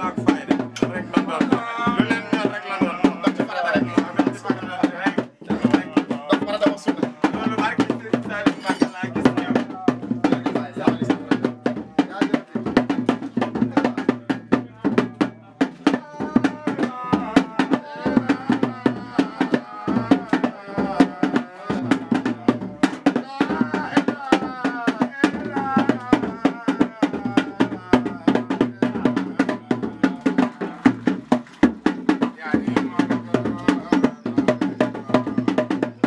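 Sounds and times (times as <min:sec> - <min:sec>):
fast hand-drum rhythm: 0:00.0 - 0:36.0
person singing wavering melody: 0:15.8 - 0:31.2, 0:32.5 - 0:36.0.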